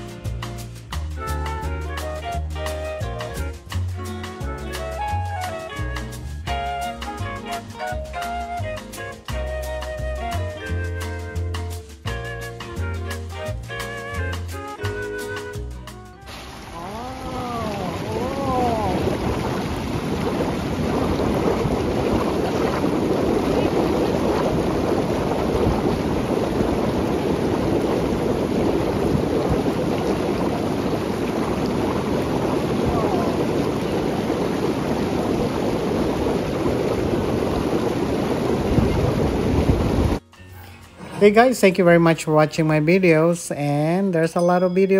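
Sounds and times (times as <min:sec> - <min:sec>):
underwater jets bubbling water: 0:16.2 - 0:40.2.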